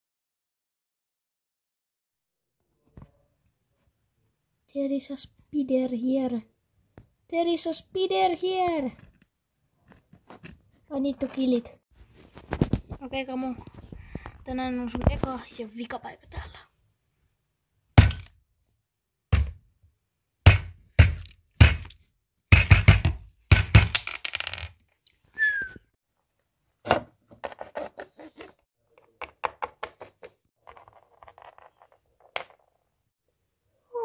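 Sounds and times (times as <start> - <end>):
plastic bottle thunking on wooden table: 26.8 - 27.2.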